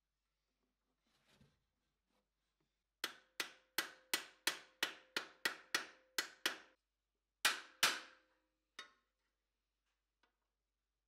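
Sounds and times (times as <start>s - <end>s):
hammer striking steel punch: 7.4s - 8.2s.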